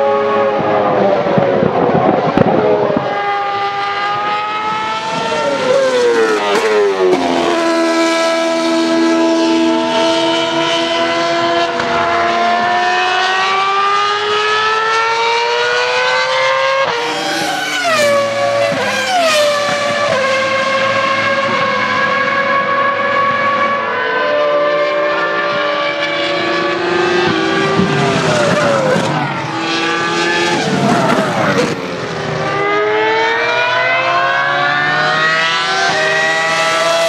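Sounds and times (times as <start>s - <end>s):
engine downshifts: 0.0s - 37.0s
racing car engine revving: 0.0s - 37.0s.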